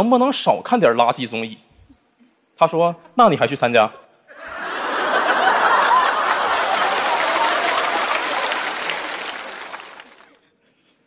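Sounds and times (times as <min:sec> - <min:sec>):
audience laughing: 0:04.3 - 0:10.3
audience applauding: 0:04.6 - 0:10.4.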